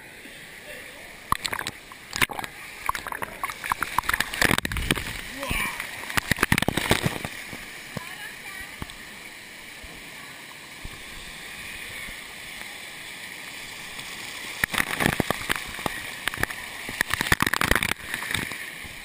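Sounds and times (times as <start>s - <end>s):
water pouring from waterfall: 1.2s - 9.0s, 10.8s - 19.0s
water splashing close up: 1.2s - 9.0s, 13.8s - 19.0s.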